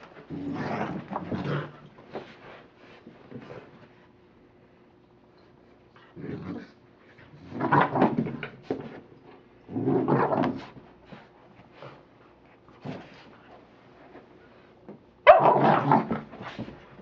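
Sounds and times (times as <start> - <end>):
puppy growling in play: 0.0 - 2.2, 5.9 - 8.5, 9.6 - 10.8, 15.3 - 16.7.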